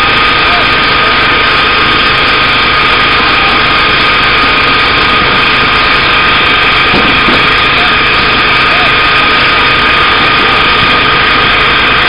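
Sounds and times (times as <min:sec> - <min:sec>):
boat engine drone: 0:00.0 - 0:12.0.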